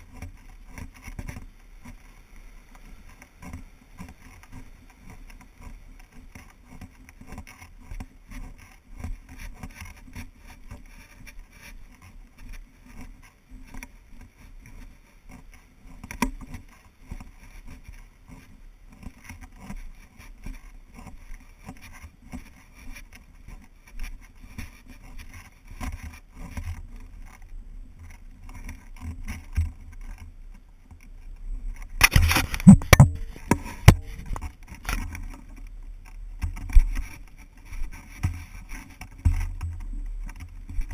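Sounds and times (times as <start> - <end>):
footsteps on dirt trail: 32.0 - 35.3
camera pole mount scraping: 32.0 - 35.6.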